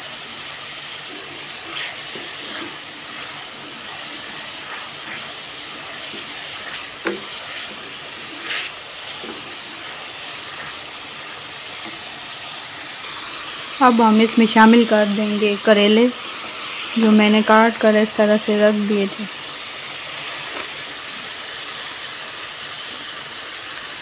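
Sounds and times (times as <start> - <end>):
meat sizzling in oil: 0.0 - 24.0
wooden spoon scraping pot: 1.0 - 12.4.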